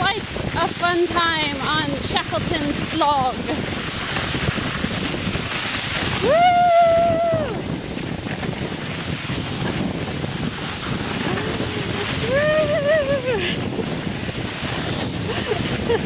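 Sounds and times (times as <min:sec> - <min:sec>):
sliding on snow: 0:00.0 - 0:16.0
wind on microphone: 0:00.0 - 0:16.0
person calling whoo: 0:06.2 - 0:07.6, 0:11.3 - 0:13.5.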